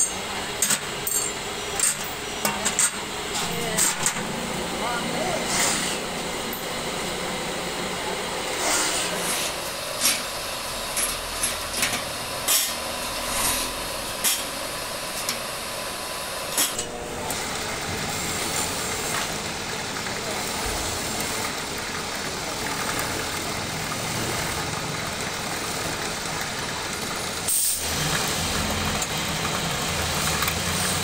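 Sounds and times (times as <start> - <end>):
tools knocking and scraping metal: 0.0 - 4.3
steady background hum: 0.0 - 28.8.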